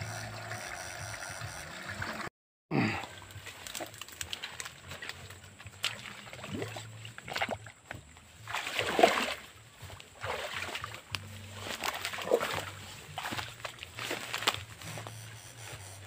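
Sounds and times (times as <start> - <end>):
footsteps splashing in water: 3.0 - 15.2.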